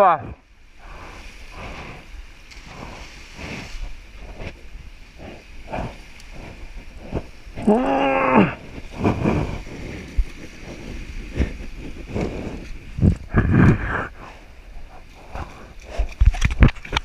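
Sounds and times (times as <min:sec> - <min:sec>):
surf: 0:00.0 - 0:17.0
water splashing: 0:00.3 - 0:14.2
person crying out: 0:07.6 - 0:08.6.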